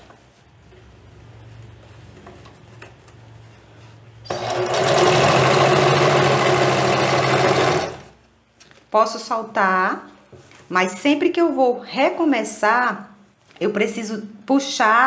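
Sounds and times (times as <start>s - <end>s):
sewing machine stitching: 4.3s - 8.1s.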